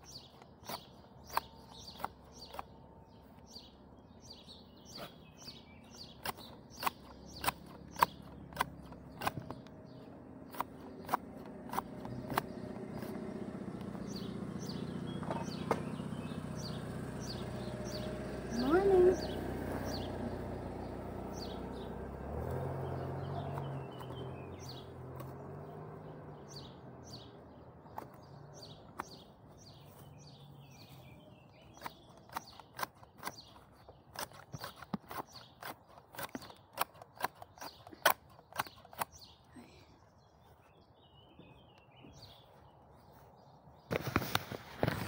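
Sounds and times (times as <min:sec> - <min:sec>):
garden shears snipping grass: 0:00.0 - 0:25.9, 0:26.5 - 0:39.7, 0:43.9 - 0:45.0
birds chirping faintly: 0:00.0 - 0:45.0
car driving past: 0:19.2 - 0:27.3.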